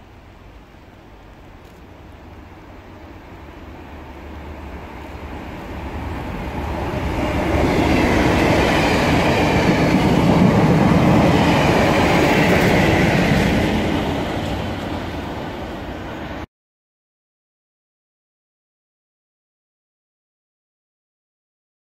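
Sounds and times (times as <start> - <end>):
diesel locomotive engine: 0.0 - 16.5
train wheel clatter: 6.9 - 15.9.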